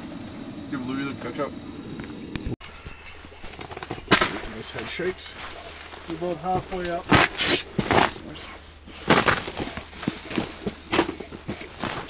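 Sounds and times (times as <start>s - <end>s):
steady low hum: 0.0s - 12.0s
rustling and scuffing: 2.6s - 12.0s.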